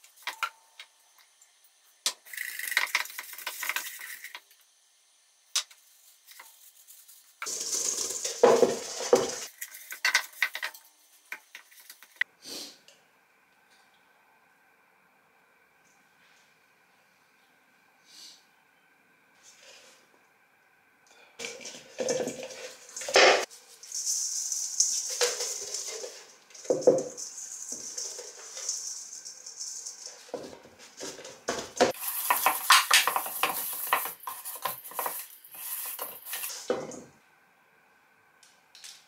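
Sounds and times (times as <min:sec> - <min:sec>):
hand rubbing vegetable: 0:05.8 - 0:09.9
vegetable clinking in metal bowl: 0:07.4 - 0:10.8, 0:21.4 - 0:36.6.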